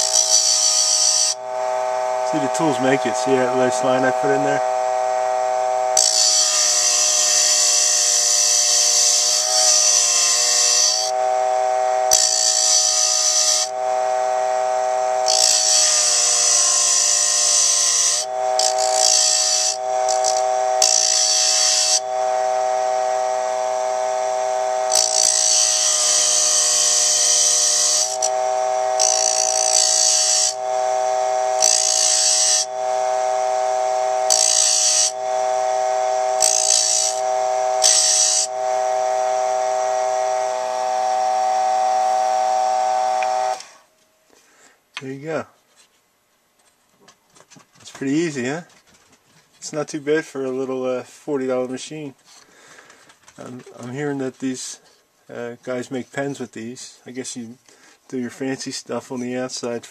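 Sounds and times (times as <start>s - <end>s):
small motor whining: 0.0s - 43.9s
chisel scraping wood: 6.0s - 11.2s, 12.1s - 13.7s, 15.3s - 22.0s, 31.6s - 32.7s.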